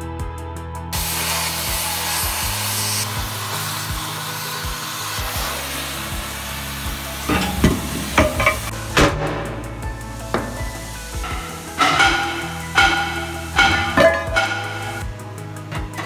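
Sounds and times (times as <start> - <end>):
background music with beat: 0.0 - 16.0
cutting torch hissing: 1.0 - 16.0
metal knocks: 7.3 - 15.1.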